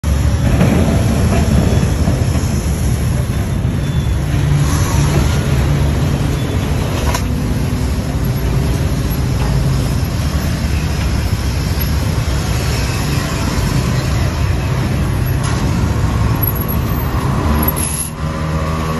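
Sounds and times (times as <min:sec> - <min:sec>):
ferry diesel engine rumbling: 0:00.0 - 0:18.9.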